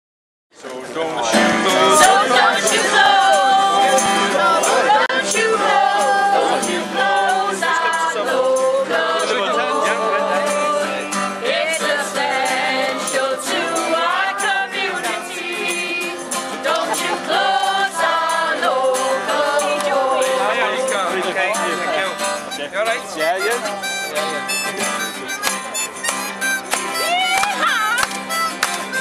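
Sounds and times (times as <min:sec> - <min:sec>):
singing voices: 0:00.9 - 0:29.0
instrumental music: 0:01.2 - 0:29.0
percussion hits: 0:21.8 - 0:29.0.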